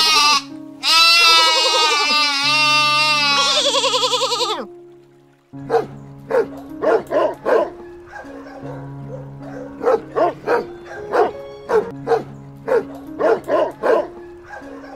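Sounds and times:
background music with held notes: 0.0s - 14.9s
dog barking: 5.7s - 14.9s.

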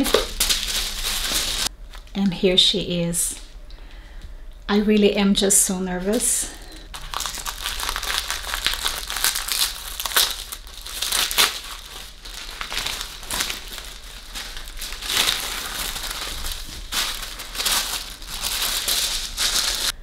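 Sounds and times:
wrapping paper crinkling: 0.0s - 2.1s, 6.1s - 20.0s.

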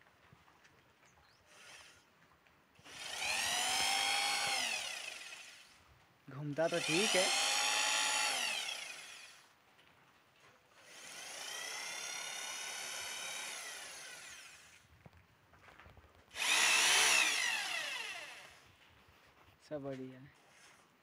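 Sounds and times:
electric hammer drill whining: 1.5s - 2.1s, 2.8s - 5.9s, 6.5s - 9.5s, 10.8s - 14.9s, 16.3s - 18.7s.

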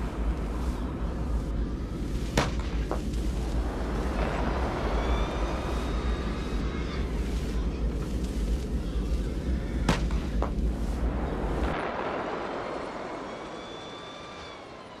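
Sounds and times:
thin high whine: 0.0s - 15.0s
sharp cracks: 2.2s - 8.8s, 9.8s - 11.0s.

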